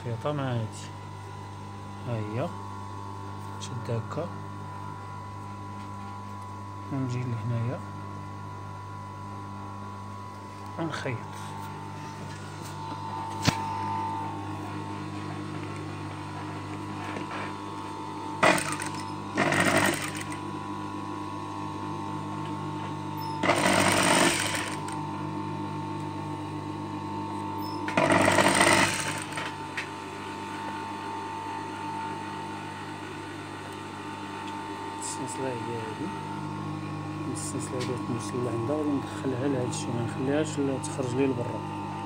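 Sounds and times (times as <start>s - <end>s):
steady background hum: 0.0s - 42.0s
sewing machine stitching: 18.4s - 20.4s, 23.4s - 25.0s, 27.9s - 29.5s.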